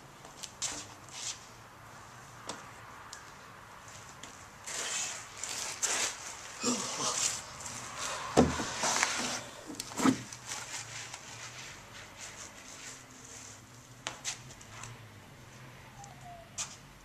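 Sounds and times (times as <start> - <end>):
scuffing close to microphone: 0.2 - 1.6, 8.7 - 15.6, 16.5 - 16.9.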